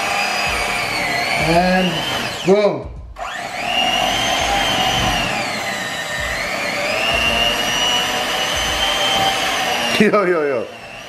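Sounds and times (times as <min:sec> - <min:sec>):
electric hand mixer whining: 0:00.0 - 0:11.0.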